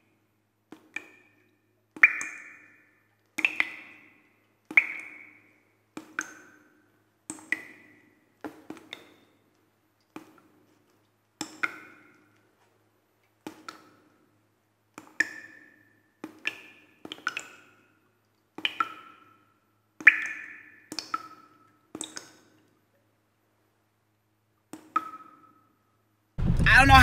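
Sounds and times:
water drops ticking: 0.7s - 10.4s, 11.4s - 12.4s, 15.0s - 22.7s, 24.6s - 25.7s.

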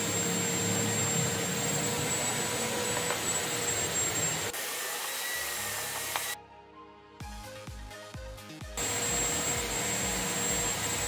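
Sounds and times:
fan machine rushing: 0.0s - 4.6s, 8.8s - 11.0s.

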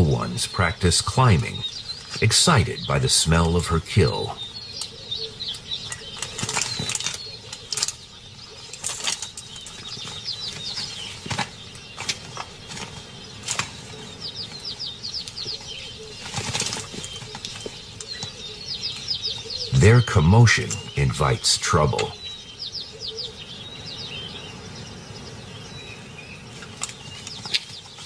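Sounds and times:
birds chirping: 0.0s - 28.0s
cubs scrabbling and rustling: 5.9s - 19.8s.

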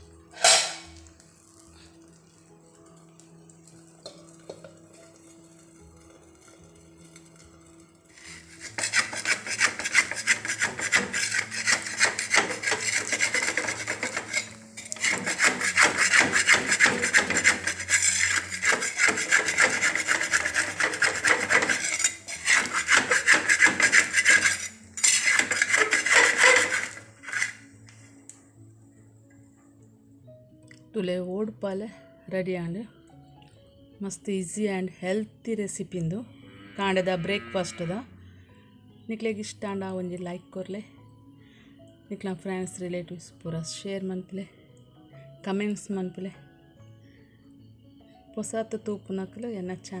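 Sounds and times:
metal spatula scraping clay pan: 0.4s - 1.0s, 8.2s - 27.7s.

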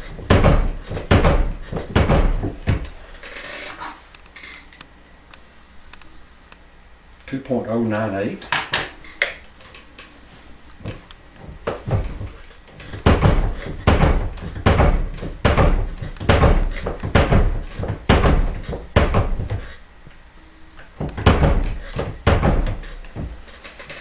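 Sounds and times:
heavy metal clunks: 11.4s - 19.8s.

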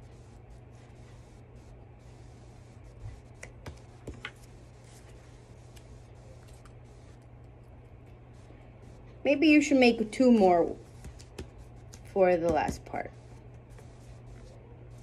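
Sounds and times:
low room hum: 0.0s - 15.0s
light taps and clicks on paper: 3.4s - 4.5s, 10.9s - 12.9s.

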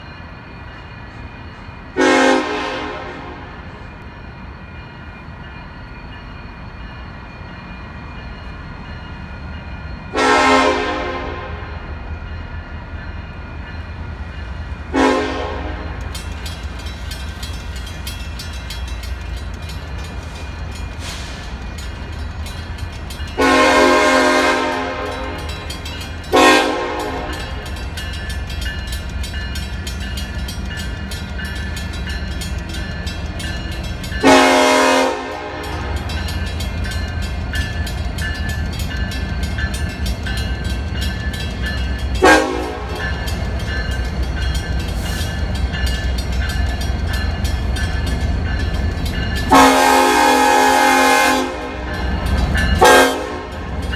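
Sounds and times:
crossing bell ringing: 0.0s - 53.9s
locomotive air horn blasts: 2.0s - 3.6s, 10.2s - 11.7s, 14.9s - 16.0s, 23.4s - 25.5s, 26.3s - 27.4s, 34.2s - 35.9s, 42.2s - 43.0s, 49.5s - 51.9s, 52.8s - 53.6s.

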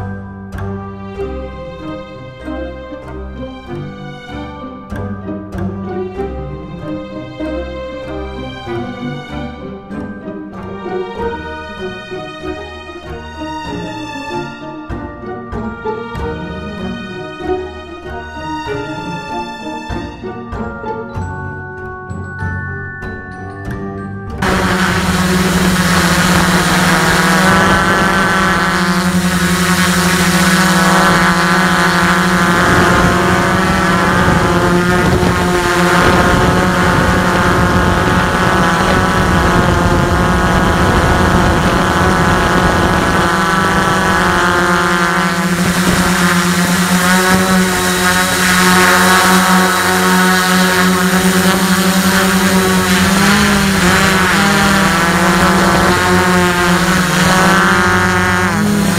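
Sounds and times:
quadcopter motors buzzing: 24.4s - 58.9s.

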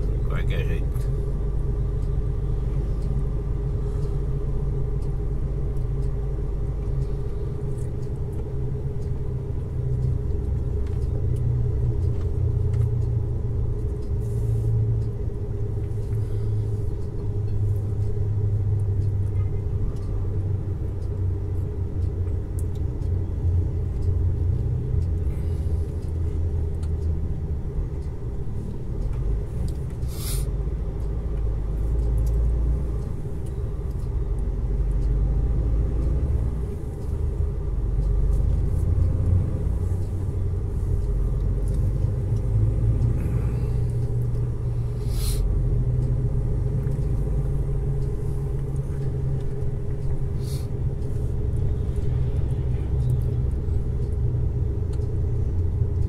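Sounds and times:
road noise: 0.0s - 56.0s
truck diesel engine drone: 0.0s - 56.0s
brief hiss: 30.1s - 30.5s, 45.0s - 45.4s.

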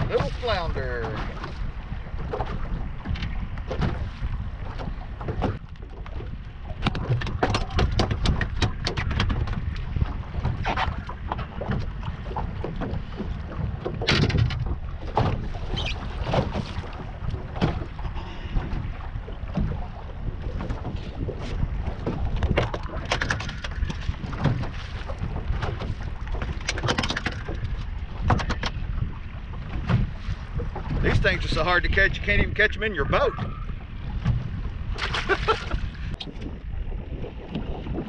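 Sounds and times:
wind buffeting microphone: 0.0s - 38.0s
sharp clicks and knocks: 6.8s - 9.6s, 13.8s - 15.4s, 25.6s - 28.8s.

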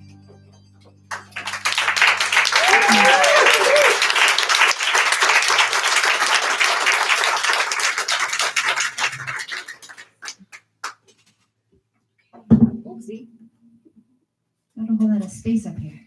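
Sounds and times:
audience applause: 1.1s - 11.0s.

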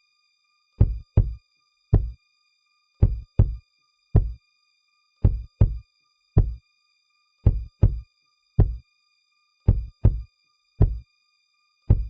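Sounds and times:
deep kick drum hits: 0.8s - 1.4s, 3.0s - 3.6s, 4.2s - 4.4s, 5.3s - 5.8s, 7.5s - 8.0s, 8.6s - 8.8s, 9.7s - 10.2s, 10.8s - 11.0s.

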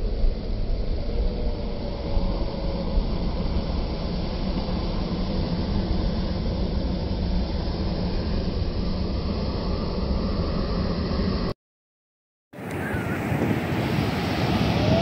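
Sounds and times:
ocean waves breaking: 12.6s - 15.0s.

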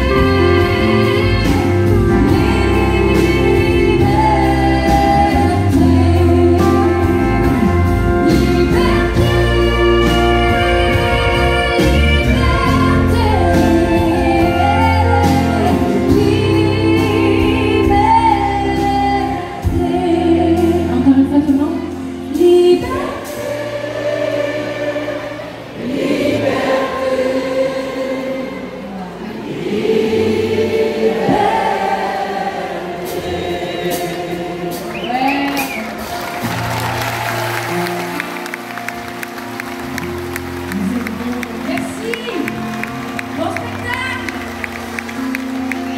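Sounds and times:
bass guitar: 0.0s - 24.2s, 34.7s - 45.9s
woman singing: 0.0s - 25.4s.

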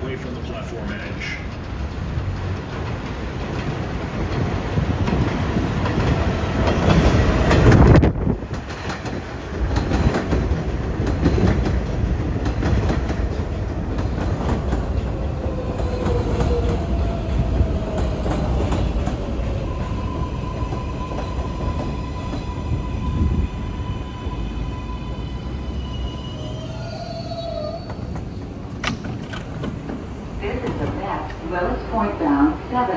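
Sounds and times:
train wheels clacking over rail joints: 1.2s - 15.1s
wheels and brakes squealing: 19.7s - 28.6s.

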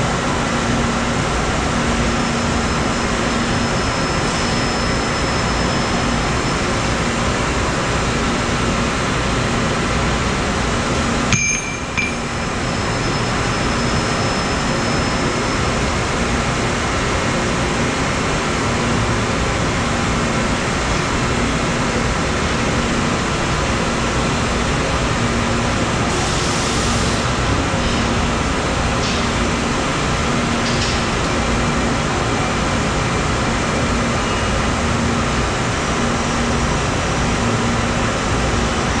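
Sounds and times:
machine shop hum: 0.0s - 39.0s
sharp metallic clink: 11.3s - 12.7s.

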